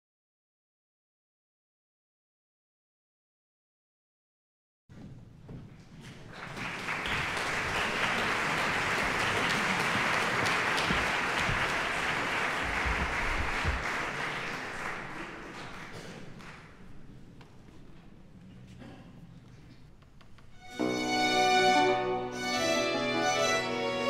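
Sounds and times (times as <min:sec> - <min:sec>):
audience applauding: 0:06.1 - 0:17.0.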